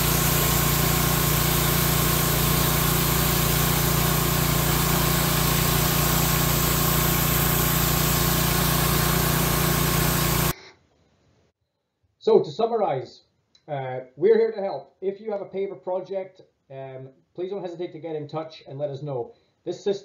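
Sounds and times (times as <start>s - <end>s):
water jet spraying paving stones: 0.0s - 10.5s
pressure washer pump hum: 0.0s - 10.6s.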